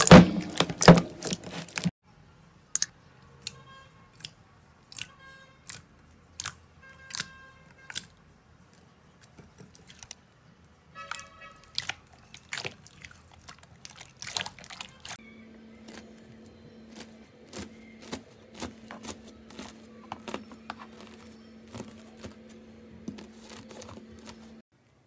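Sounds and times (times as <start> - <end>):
slime squeaky squelches: 4.2 - 8.1, 11.0 - 24.6.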